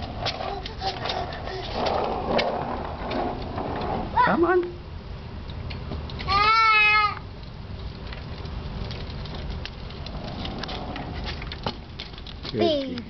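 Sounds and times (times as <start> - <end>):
bike wheels rumbling on concrete: 0.0 - 13.0
child squealing: 6.3 - 7.2.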